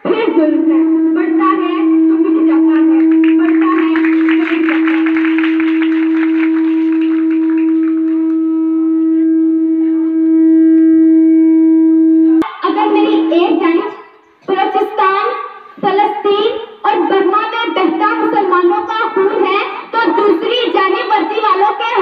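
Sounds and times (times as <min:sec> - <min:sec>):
microphone feedback howling: 0:04.5 - 0:12.4.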